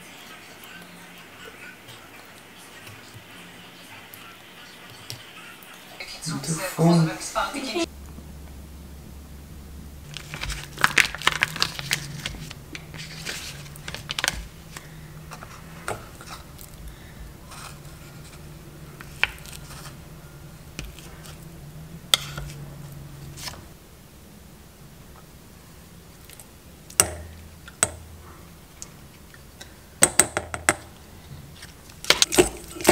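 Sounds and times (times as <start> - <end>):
paper rustling: 10.0 - 20.0, 20.8 - 21.5, 22.1 - 23.7
knife scraping plastic cup: 22.2 - 22.6.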